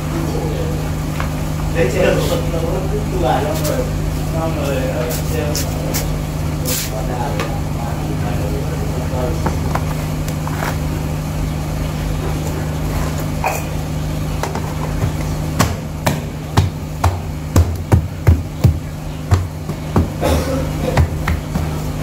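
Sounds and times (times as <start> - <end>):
steady low hum: 0.0 - 22.0
sharp knocking strikes: 15.6 - 21.8.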